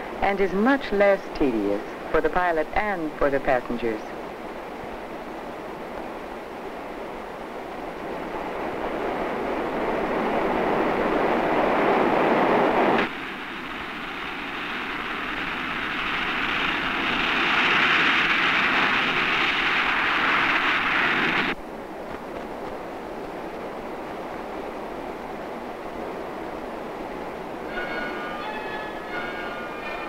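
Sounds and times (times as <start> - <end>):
jet engines rushing: 0.0 - 30.0
higher-pitched jet noise: 8.0 - 21.6, 27.5 - 30.0.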